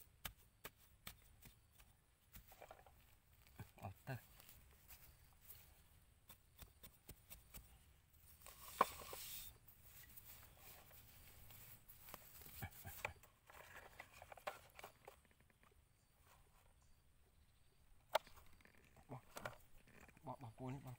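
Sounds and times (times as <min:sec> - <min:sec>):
metal blade scraping dirt: 0:08.3 - 0:11.0.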